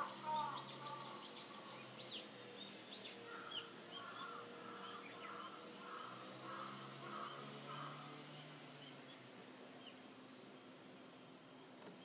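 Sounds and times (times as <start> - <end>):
rough bird call: 0.0 - 9.2
songbirds chirping: 0.0 - 12.0.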